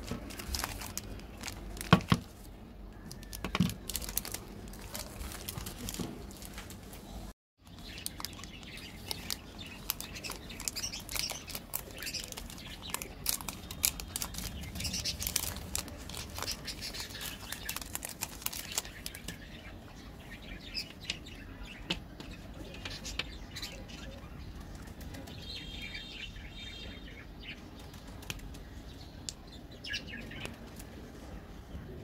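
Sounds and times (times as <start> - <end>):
wrapper and foil crinkling: 0.0 - 7.1, 7.7 - 19.5.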